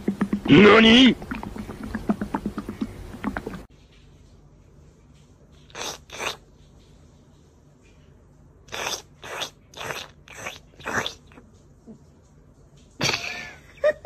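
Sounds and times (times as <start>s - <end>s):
cat making harsh mouth sounds: 0.0s - 3.7s, 5.7s - 6.5s, 8.7s - 11.4s.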